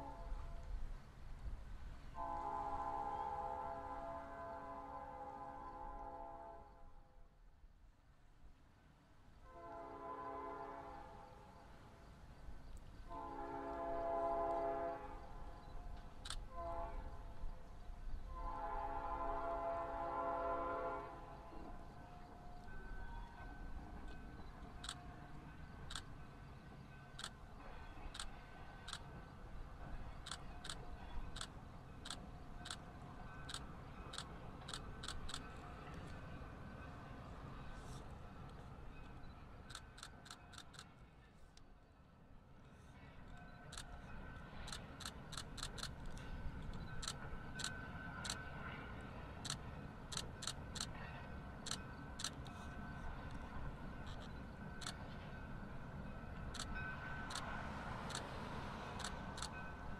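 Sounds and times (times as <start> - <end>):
distant train rumble: 0.0 - 59.9
train wheels clicking on rails: 15.4 - 16.6, 21.6 - 41.7, 42.6 - 59.9
sharp wheel clicks: 33.4 - 35.4, 39.7 - 40.9, 44.7 - 46.2, 49.4 - 51.0, 54.1 - 55.0, 57.3 - 58.3, 58.9 - 59.5.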